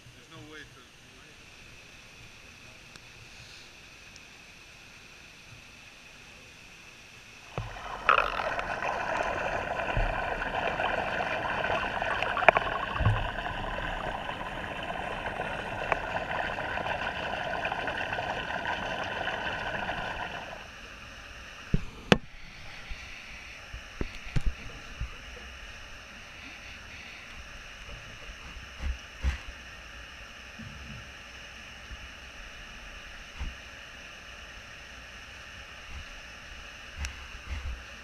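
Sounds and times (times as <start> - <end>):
water splashing and rushing: 7.5 - 20.7.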